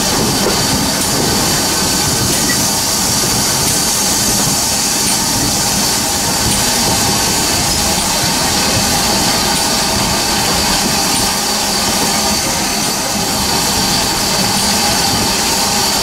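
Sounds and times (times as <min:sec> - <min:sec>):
coaches rumbling on rails: 0:00.0 - 0:16.0
steady steam hiss: 0:00.0 - 0:16.0.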